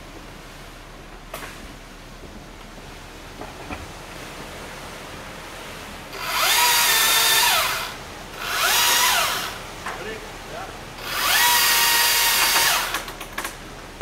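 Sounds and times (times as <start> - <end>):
chainsaw revving: 6.2 - 9.6, 11.0 - 13.1.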